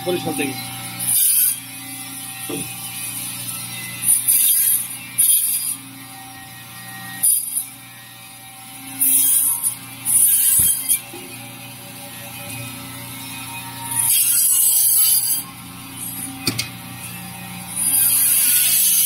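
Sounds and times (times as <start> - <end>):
band saw humming: 0.0 - 19.0
saw blade rasping through fish: 9.0 - 11.0, 14.0 - 15.4, 17.8 - 19.0.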